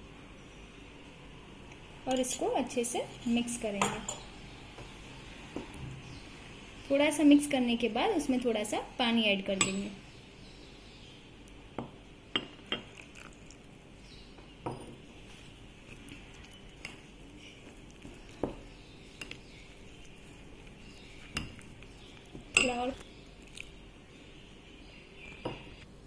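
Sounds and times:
spoon stirring thick batter: 0:15.0 - 0:23.8.

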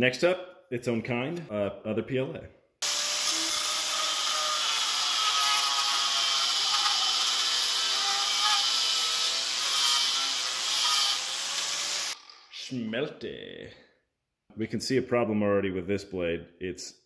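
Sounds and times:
angle grinder grinding plastic: 0:02.8 - 0:12.6.

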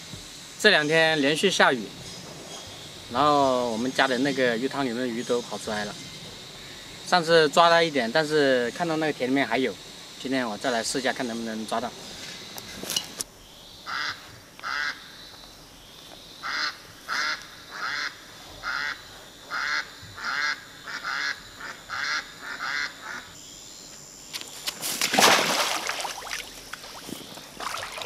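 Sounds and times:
basket splashing into water: 0:24.8 - 0:28.0.

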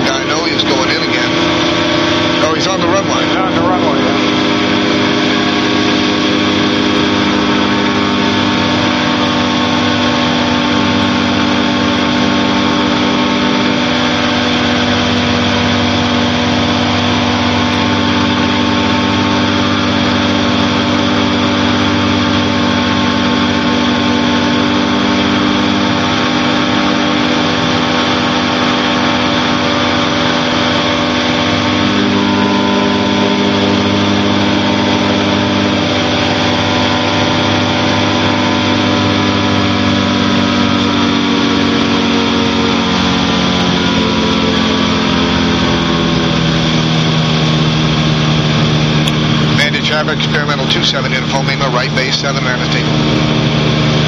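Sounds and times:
aircraft engine and propeller: 0:00.0 - 0:54.0.

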